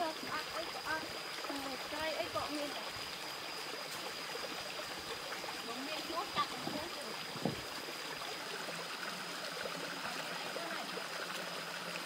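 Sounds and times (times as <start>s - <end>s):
stream trickling over stones: 0.0s - 12.0s.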